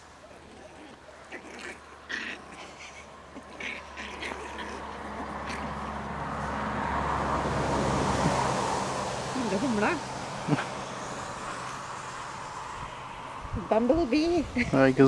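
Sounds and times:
puppies yipping and squealing: 0.1 - 6.4
steady hum and rushing noise: 4.6 - 15.0.

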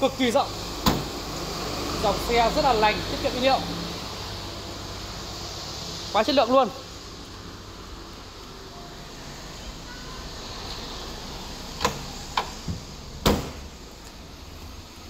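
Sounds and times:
car trunk lid shutting: 0.8 - 1.2, 11.8 - 13.7.

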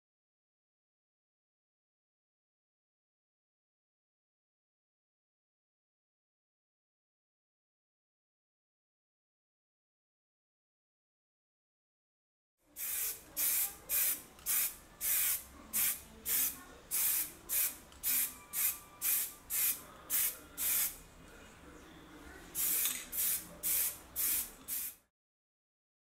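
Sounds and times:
spray paint can hissing bursts: 12.8 - 21.0, 22.6 - 25.0.

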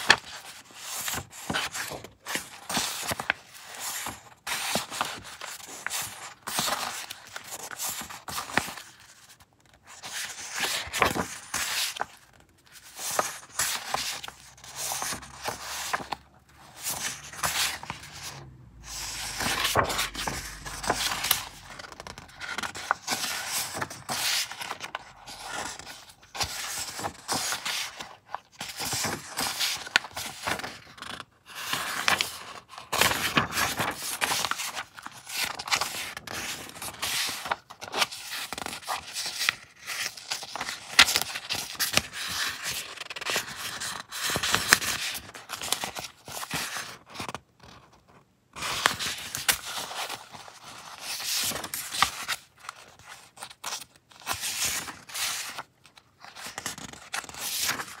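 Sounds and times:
paper sheets rustling and sliding: 0.0 - 47.4, 48.6 - 58.0
paper crinkles: 19.0 - 28.0.

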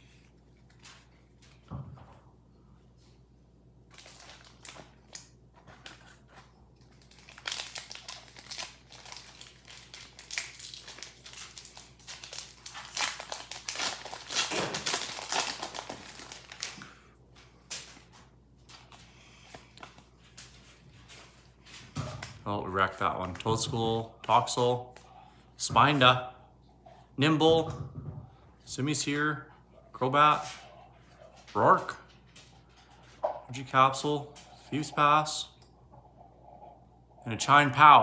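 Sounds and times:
foil wrapper crinkling and tearing: 3.9 - 16.9.

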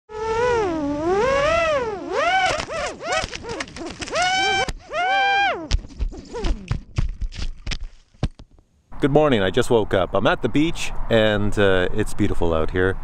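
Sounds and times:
quadcopter motors whining: 0.3 - 5.7.

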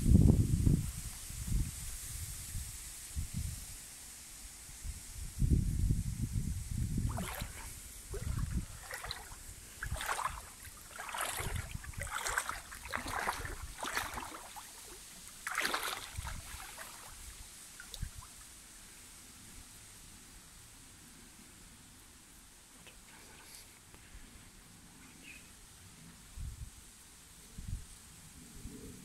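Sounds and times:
river water splashing: 7.0 - 18.6.

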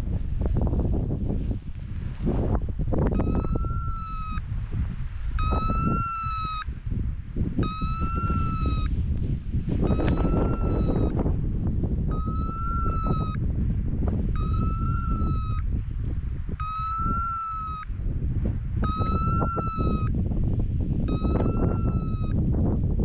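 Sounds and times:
wind rumbling on microphone: 0.0 - 23.0
electronic collar beep: 3.1 - 4.4, 5.4 - 6.6, 7.6 - 8.9, 9.8 - 11.1, 12.1 - 13.4, 14.4 - 15.6, 16.6 - 17.9, 18.8 - 20.1, 21.1 - 22.4.

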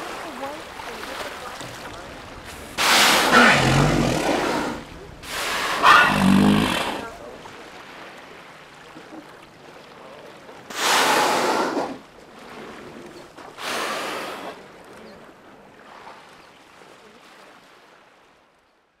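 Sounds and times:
faint lapping water: 0.0 - 19.0
whales exhaling breathily: 2.4 - 7.2.

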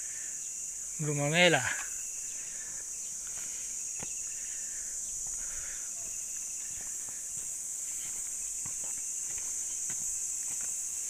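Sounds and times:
insects buzzing: 0.0 - 11.0
footsteps on stone: 3.2 - 4.2, 5.1 - 11.0.

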